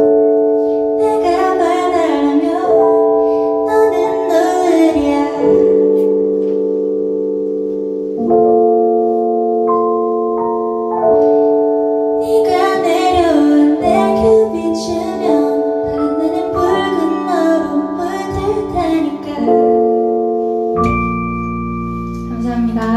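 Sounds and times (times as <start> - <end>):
sustained keyboard chords: 0.0 - 22.9
woman singing: 1.0 - 6.1, 12.2 - 20.0, 22.3 - 22.9.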